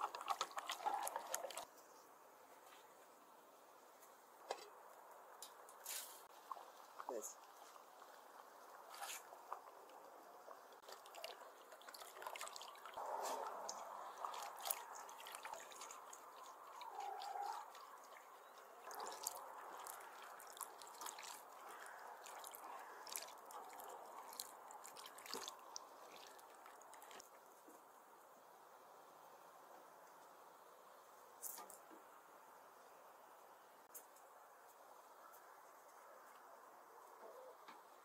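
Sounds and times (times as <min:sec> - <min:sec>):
soup splashing and trickling: 0:00.0 - 0:01.7, 0:05.9 - 0:27.3.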